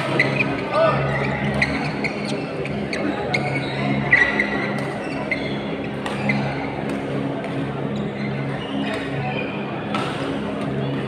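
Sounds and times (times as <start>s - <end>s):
shoe squeaks on court floor: 0.1s - 6.7s
racket hitting shuttlecock: 9.9s - 10.2s.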